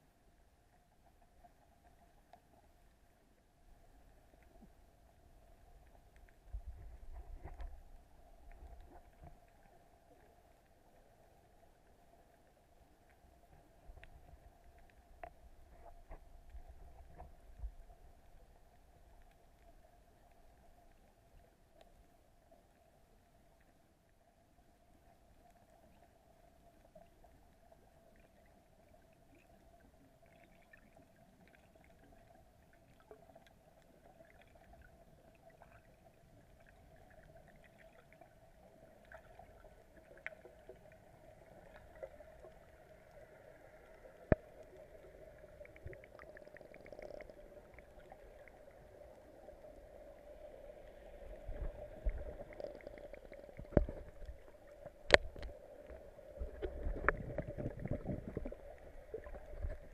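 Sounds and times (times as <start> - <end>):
faint clicks: 1.0 - 3.1, 4.0 - 23.8, 25.0 - 59.9
muffled underwater hum: 38.3 - 59.9.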